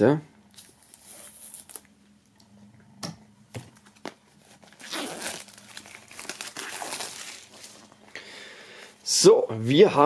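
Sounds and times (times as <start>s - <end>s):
plastic film snapping: 3.8s - 7.8s
plastic film crinkling: 3.8s - 7.9s.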